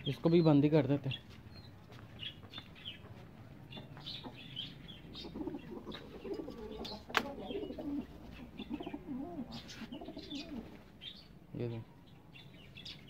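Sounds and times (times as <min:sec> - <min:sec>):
pigeons cooing: 0:03.6 - 0:11.2.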